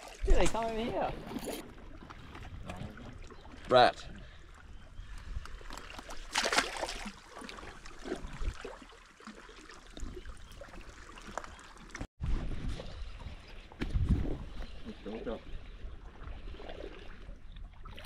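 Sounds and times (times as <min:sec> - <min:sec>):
water lapping around rocks: 0:00.0 - 0:18.0
fish splashing into water: 0:05.7 - 0:12.1.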